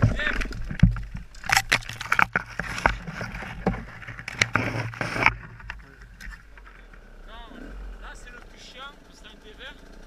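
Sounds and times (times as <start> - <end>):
branches scraping helmet camera: 0.0 - 10.0
dirt bike engine idling: 4.8 - 10.0.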